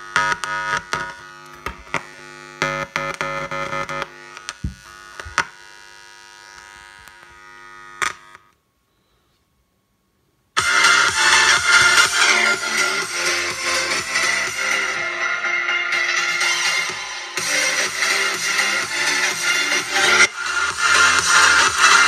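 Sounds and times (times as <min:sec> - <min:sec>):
loud crackles and pops: 0:00.0 - 0:05.6
loudspeaker electrical buzz: 0:00.0 - 0:08.6, 0:10.6 - 0:22.0.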